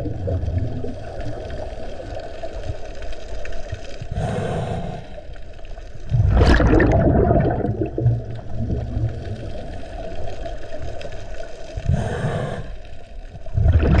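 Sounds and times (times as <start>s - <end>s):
exhaled bubbles burbling: 0.0s - 2.4s, 6.0s - 11.0s, 13.3s - 14.0s
regulator inhalation hiss: 4.2s - 5.2s, 11.9s - 12.9s.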